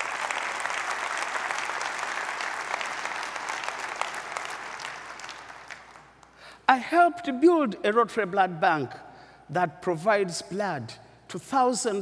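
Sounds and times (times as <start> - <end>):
large audience applauding: 0.0 - 6.3.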